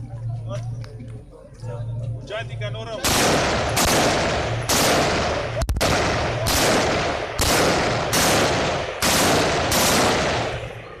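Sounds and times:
rifle shots with rolling echo: 3.0s - 11.0s.

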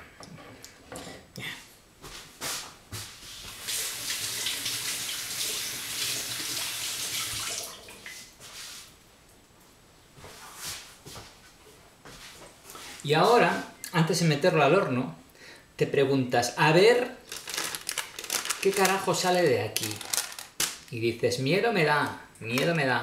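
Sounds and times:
water running from a tap: 3.5s - 8.1s.

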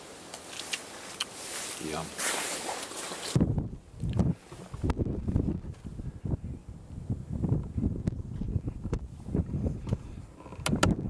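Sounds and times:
wind buffeting microphone: 3.2s - 11.0s.

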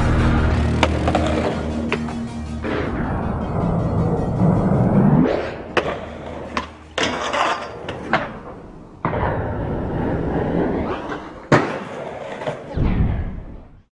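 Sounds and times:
skateboard wheels rolling on concrete: 0.0s - 2.1s, 5.8s - 12.7s
skateboard sliding on metal rail: 5.8s - 8.6s.

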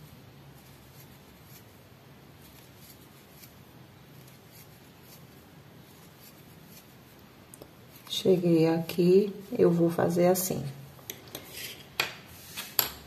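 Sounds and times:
crochet hook rubbing yarn: 0.0s - 7.2s, 7.8s - 10.1s
low steady hum: 0.0s - 13.0s.

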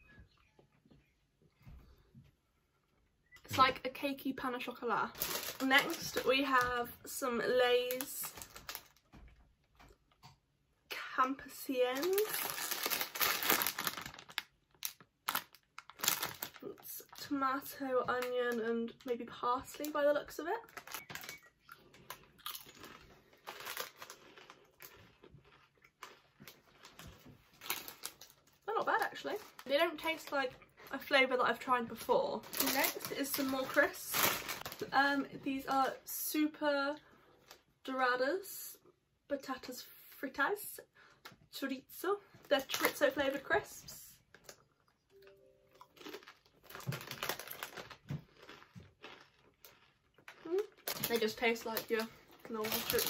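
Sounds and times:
person crunching crisps: 5.1s - 6.4s, 7.8s - 9.1s, 11.8s - 17.2s, 20.6s - 30.3s, 32.4s - 34.9s, 45.7s - 53.0s.

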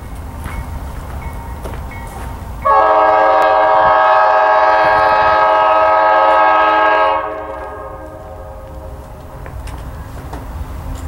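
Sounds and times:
locomotive air horn blast: 2.6s - 9.0s.

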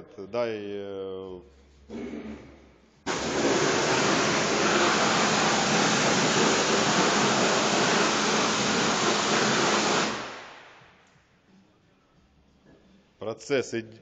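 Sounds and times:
pressure washer water jet hissing: 3.1s - 10.7s.

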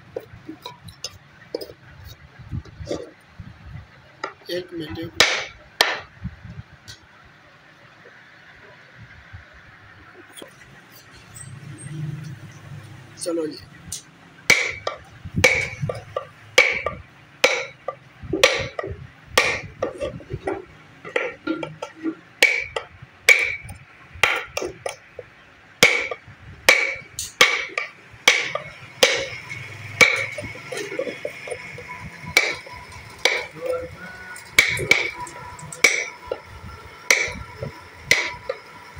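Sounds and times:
chisel knocking on wooden box: 14.5s - 17.8s, 18.4s - 18.8s, 32.4s - 33.6s, 37.1s - 38.6s.

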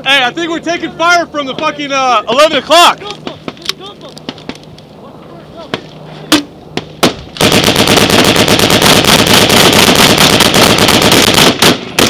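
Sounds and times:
automatic gunfire: 7.0s - 12.0s.

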